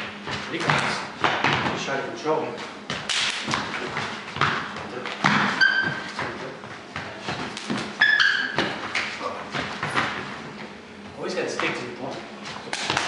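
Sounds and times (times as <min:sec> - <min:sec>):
footsteps on wooden floor: 0:02.6 - 0:13.0
short high squeaks: 0:05.6 - 0:06.1, 0:08.0 - 0:08.6.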